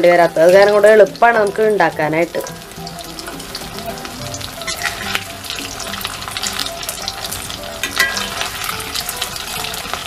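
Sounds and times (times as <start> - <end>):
snacks sizzling in hot oil: 0.0 - 10.0
spatula scraping metal pan: 2.5 - 10.0.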